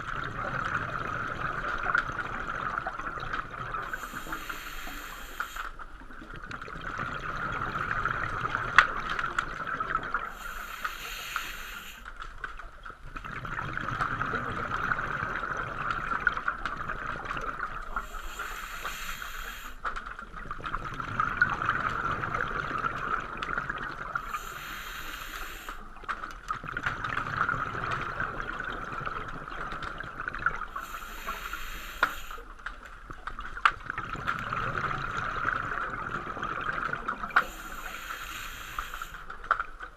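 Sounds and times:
diver breathing through regulator: 3.9s - 5.8s, 10.3s - 12.1s, 18.0s - 19.8s, 24.2s - 25.9s, 30.8s - 32.5s, 37.4s - 39.3s
bubbling exhalations: 33.8s - 39.2s.

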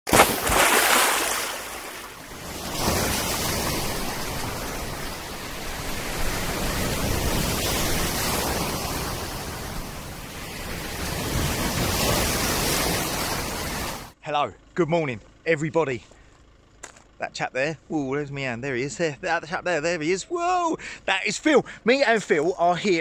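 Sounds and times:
small waves washing in surf: 0.1s - 14.2s.

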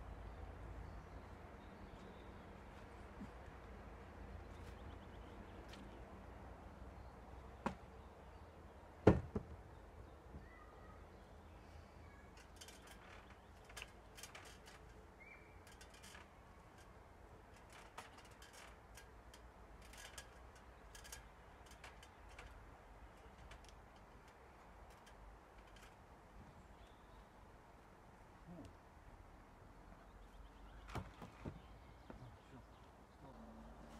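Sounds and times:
knocks on wooden frame: 9.0s - 9.6s
faint bird chirps: 10.3s - 13.6s, 15.2s - 15.9s.

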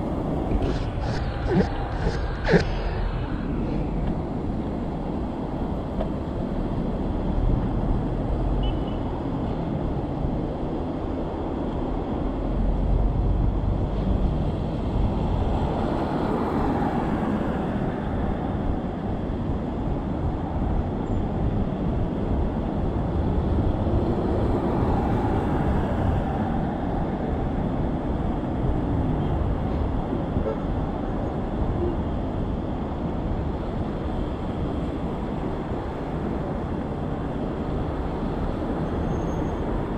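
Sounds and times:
wind rumbling on microphone: 0.0s - 8.6s
road traffic noise: 0.0s - 39.9s
vehicles passing: 0.0s - 39.9s.

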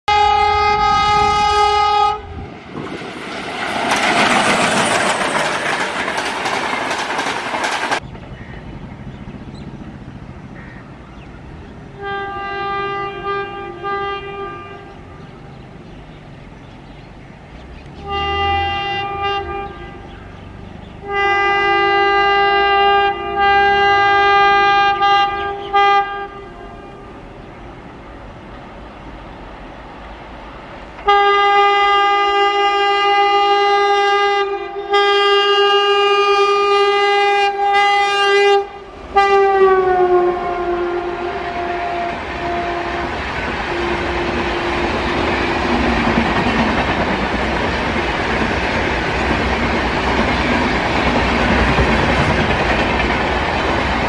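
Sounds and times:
train horn blasts: 0.1s - 2.5s, 11.9s - 15.5s, 18.0s - 20.3s, 21.0s - 27.2s, 31.0s - 46.2s
passing train rushing: 0.1s - 54.0s.

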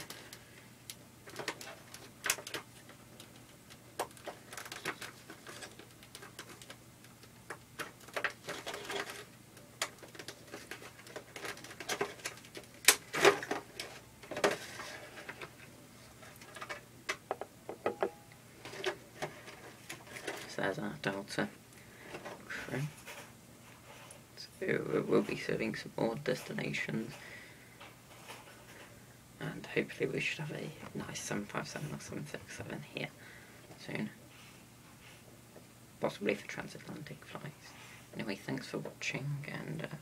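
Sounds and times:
plastic packaging rustling: 1.2s - 16.9s.

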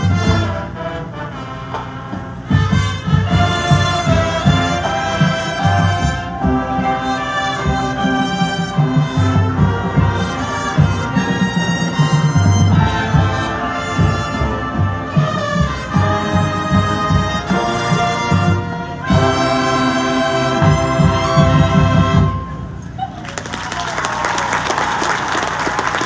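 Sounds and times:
marching band brass chords: 0.0s - 22.9s
drum hits: 2.1s - 19.6s.

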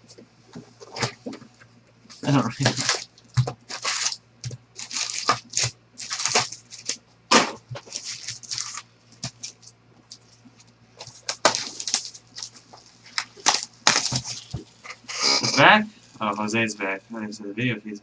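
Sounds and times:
foil wrappers crinkling and tearing: 2.1s - 7.0s, 7.7s - 10.3s, 11.0s - 14.9s.

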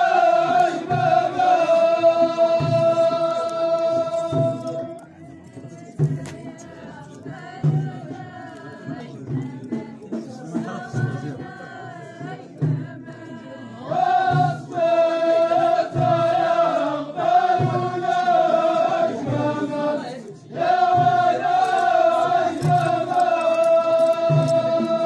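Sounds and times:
low drum beat: 0.0s - 19.8s
men's chorus chanting: 0.0s - 25.0s.

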